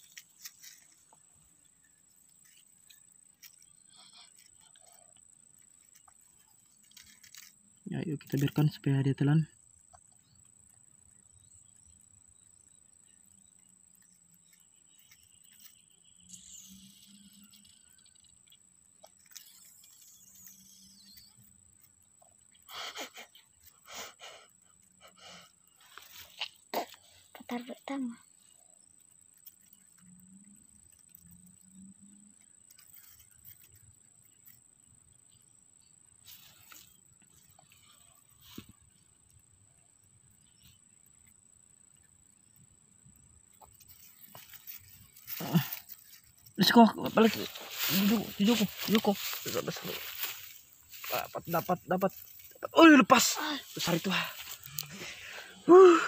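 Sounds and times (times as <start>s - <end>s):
faint high whine: 11.1s - 23.2s.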